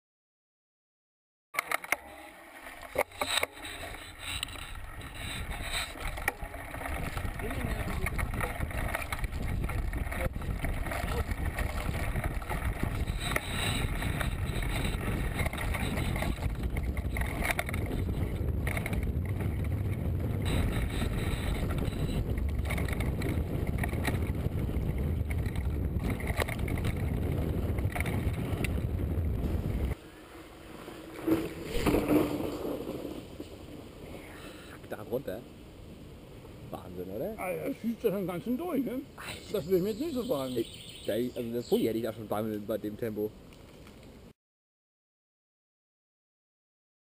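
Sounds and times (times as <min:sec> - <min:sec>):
bike rattling over rough ground: 0:01.6 - 0:34.7, 0:39.4 - 0:42.1
bike tyres crunching on stones: 0:02.6 - 0:34.2
wind rumbling on microphone: 0:02.8 - 0:34.5.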